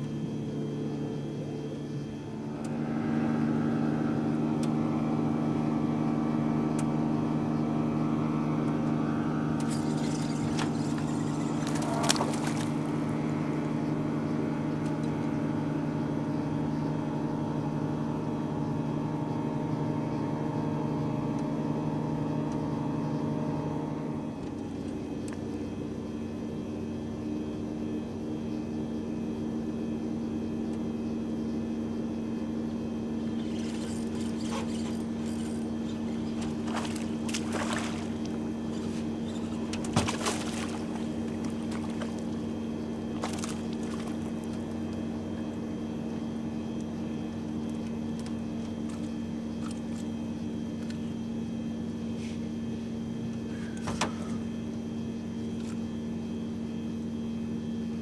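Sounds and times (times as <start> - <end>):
trolling motor humming: 0.0 - 58.0.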